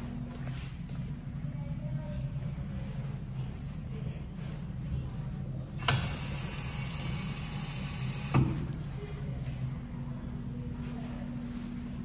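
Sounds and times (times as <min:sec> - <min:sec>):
valve shutting thump: 0:05.8 - 0:06.4
flush valve click: 0:05.8 - 0:08.6.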